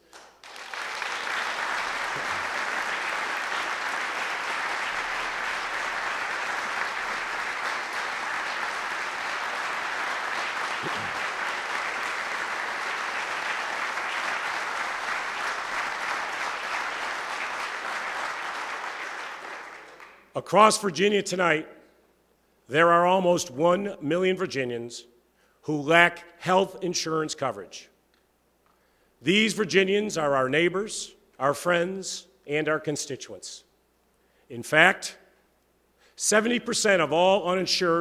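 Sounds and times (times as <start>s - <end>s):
large audience applauding: 0.0s - 20.3s.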